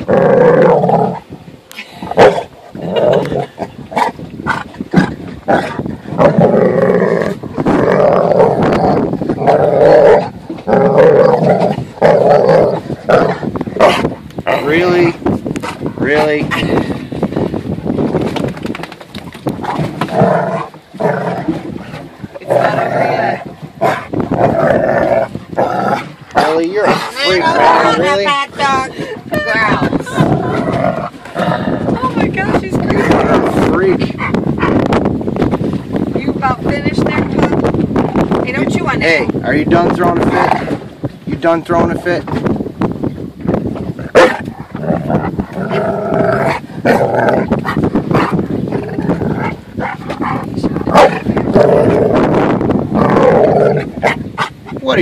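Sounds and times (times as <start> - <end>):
dog growling and grumbling: 2.0 - 15.0, 19.6 - 28.2, 29.8 - 32.2, 44.0 - 54.2.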